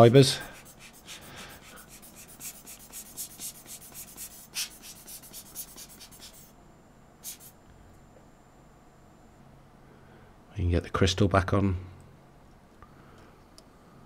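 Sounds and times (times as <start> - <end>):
brush scratching watch dial: 0.0 - 6.5.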